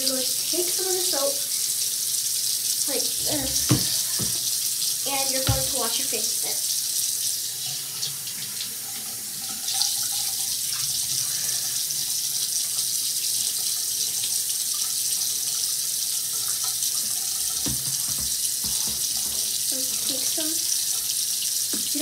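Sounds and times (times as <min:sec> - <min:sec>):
face being washed: 0:00.0 - 0:22.0
tap running into sink: 0:03.2 - 0:04.6, 0:05.2 - 0:06.0, 0:17.0 - 0:21.1, 0:21.7 - 0:22.0.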